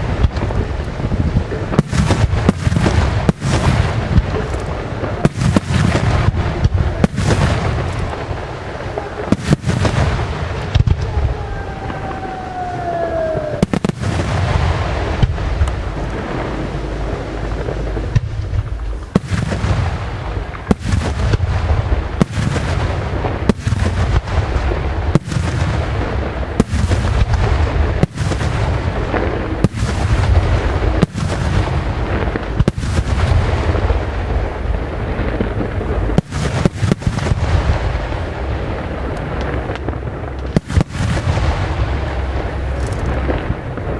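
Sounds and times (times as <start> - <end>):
low rumble: 0.0 - 22.2, 23.0 - 43.9
firework bangs: 0.0 - 43.9
falling firework whistle: 10.7 - 14.9.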